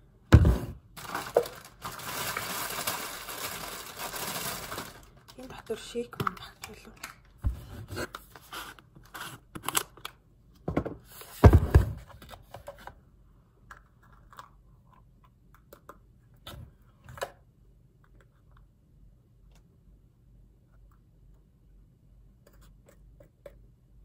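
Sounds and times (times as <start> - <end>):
packaging rustling and tearing: 1.0 - 5.3.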